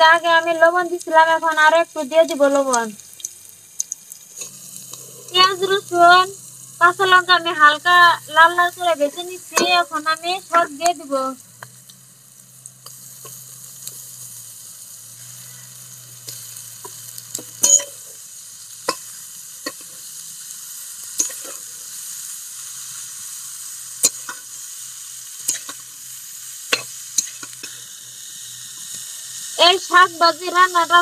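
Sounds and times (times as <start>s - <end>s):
greens sizzling in oil: 0.0s - 31.0s
metal spatula scraping a pan: 21.2s - 21.7s.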